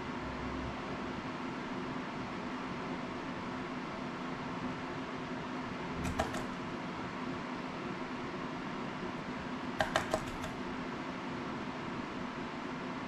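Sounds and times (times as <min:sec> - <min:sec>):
fan-like room hum: 0:00.0 - 0:13.0
small tool clicks and taps: 0:06.0 - 0:06.6, 0:09.8 - 0:10.6.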